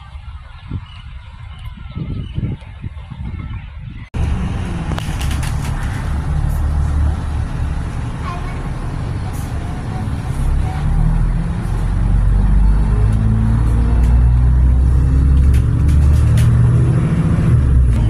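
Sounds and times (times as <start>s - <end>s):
vehicle engine droning: 4.2s - 18.0s.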